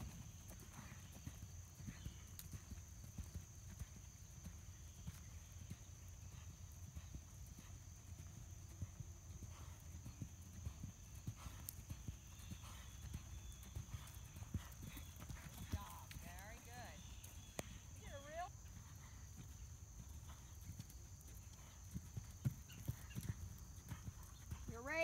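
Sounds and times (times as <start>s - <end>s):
horse hoofbeats on soft sand: 0.0s - 25.0s.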